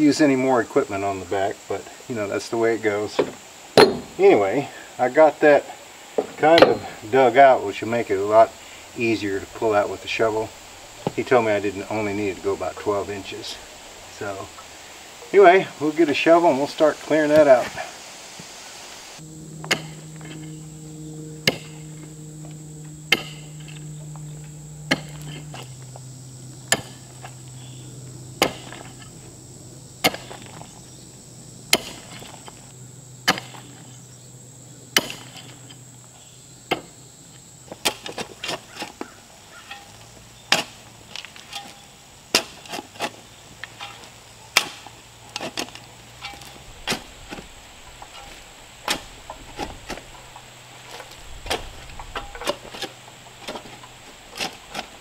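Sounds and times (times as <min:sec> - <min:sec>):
digging tool striking rocky soil: 0:03.8 - 0:04.2, 0:19.7 - 0:20.0, 0:21.4 - 0:21.7, 0:23.1 - 0:23.7, 0:24.9 - 0:25.7, 0:26.7 - 0:27.2, 0:28.4 - 0:29.1, 0:30.0 - 0:30.6, 0:31.7 - 0:32.4, 0:33.2 - 0:33.7, 0:34.9 - 0:35.6, 0:37.7 - 0:50.1, 0:50.9 - 0:55.0
shovel scraping dirt: 0:19.2 - 0:20.7, 0:21.3 - 0:29.3, 0:30.0 - 0:31.0, 0:31.6 - 0:34.0, 0:34.9 - 0:37.0, 0:37.6 - 0:55.0.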